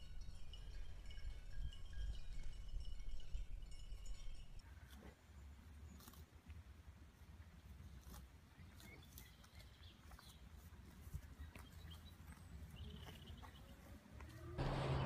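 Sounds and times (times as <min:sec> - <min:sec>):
cow tearing and crunching grass: 0:04.7 - 0:15.0
loud steady noise with hum: 0:14.6 - 0:15.0
low rumble: 0:14.6 - 0:15.0.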